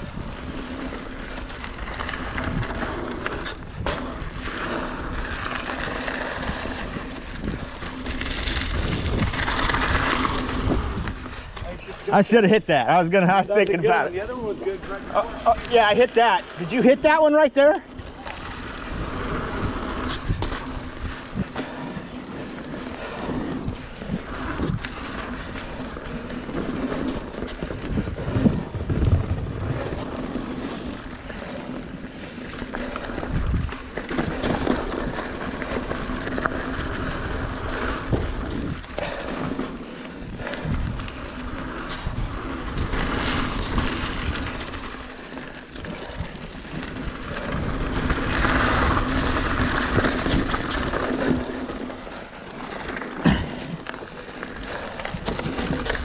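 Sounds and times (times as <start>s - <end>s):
bike rattling and knocking: 0.0s - 56.0s
bike tyres on dirt and gravel: 0.0s - 56.0s
wind on microphone: 6.3s - 11.9s, 26.4s - 30.6s.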